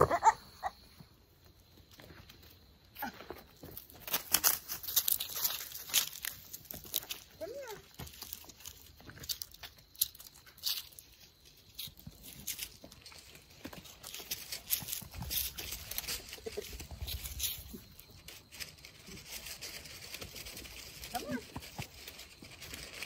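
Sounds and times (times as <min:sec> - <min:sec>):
goat hooves scuffing dirt: 0:01.4 - 0:23.0
footsteps crunching on dry leaves: 0:03.4 - 0:23.0.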